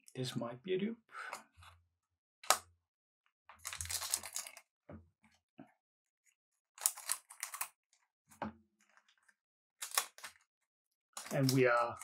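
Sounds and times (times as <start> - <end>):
trading cards rustling: 3.6 - 4.7, 6.7 - 7.8.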